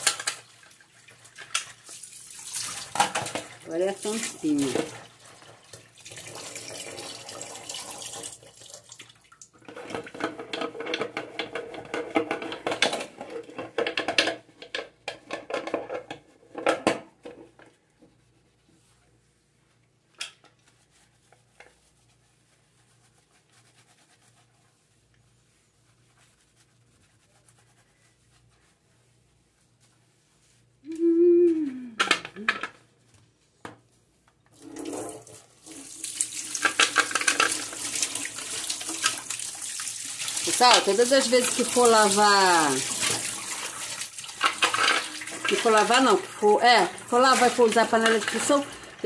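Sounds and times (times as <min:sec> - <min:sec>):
tap water running into sink: 0:00.0 - 0:15.8, 0:34.5 - 0:49.0
sponge scrubbing metal lid: 0:40.4 - 0:48.7.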